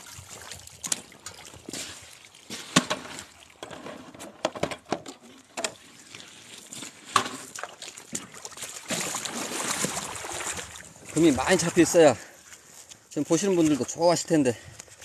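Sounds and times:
water trickling and pouring: 0:00.0 - 0:04.2, 0:05.3 - 0:14.3.

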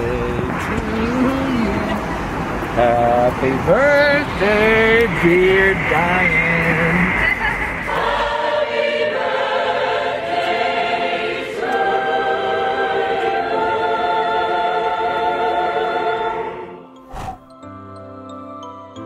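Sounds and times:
choir singing held chords: 0:01.2 - 0:17.5.

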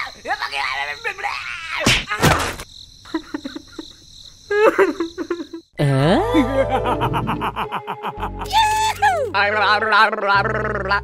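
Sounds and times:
squeaky cartoon character voices: 0:08.4 - 0:11.0.

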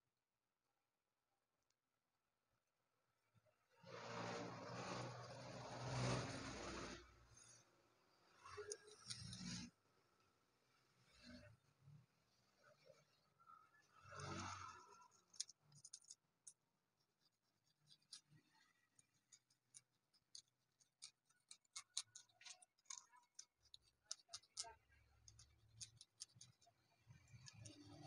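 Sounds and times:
scraping paint off stone: 0:08.4 - 0:09.7, 0:14.0 - 0:28.0.

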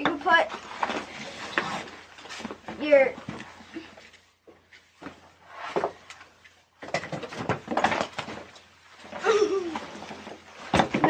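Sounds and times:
backpack rustling and scraping: 0:00.3 - 0:06.0.

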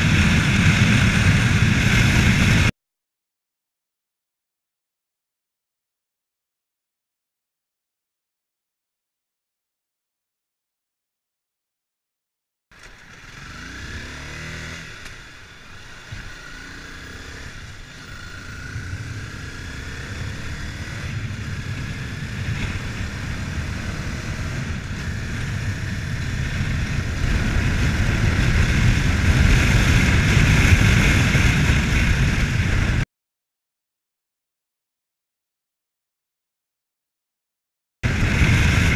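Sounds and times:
motorcycle engine accelerating: 0:00.0 - 0:02.7, 0:12.7 - 0:33.0, 0:38.0 - 0:38.9
rushing ride noise: 0:38.0 - 0:38.9.

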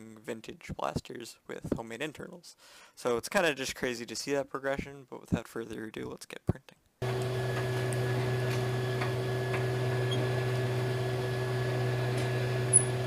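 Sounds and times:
printer fans and motors humming: 0:07.0 - 0:13.0.

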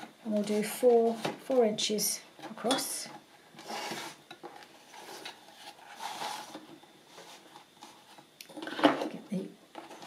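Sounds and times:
card rustling and scraping: 0:03.6 - 0:08.4.

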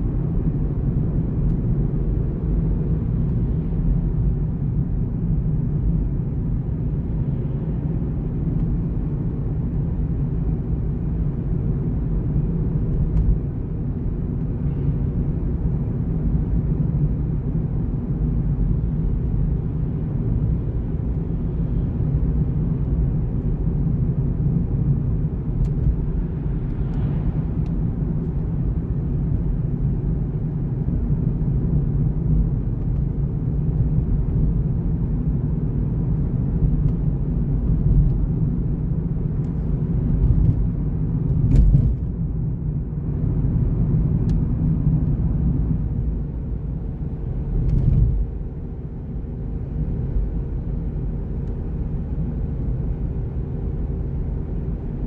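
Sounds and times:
tyre and road noise: 0:17.8 - 0:52.0.

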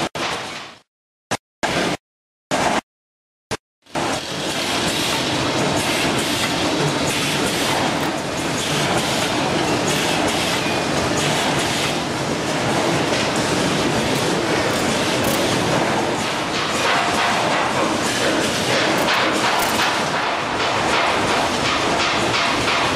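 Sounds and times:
packaging machinery running: 0:12.7 - 0:16.2, 0:18.3 - 0:20.2.

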